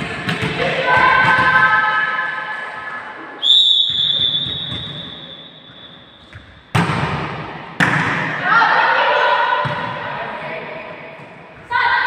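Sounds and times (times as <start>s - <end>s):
referee's whistle blast: 3.4s - 6.1s.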